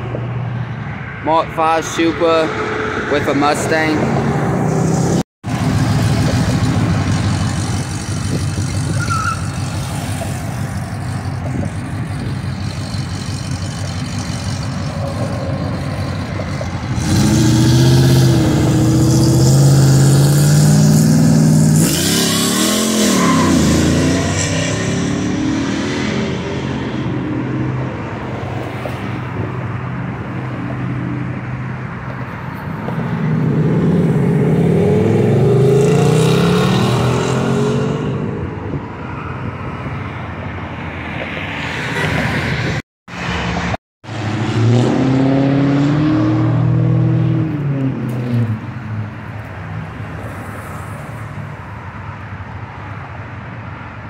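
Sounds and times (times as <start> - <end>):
car engines driving: 0.0 - 54.0
engine revving: 3.0 - 27.1, 33.4 - 38.3, 44.0 - 48.5
engine accelerating loudly: 3.1 - 27.0, 33.4 - 38.2.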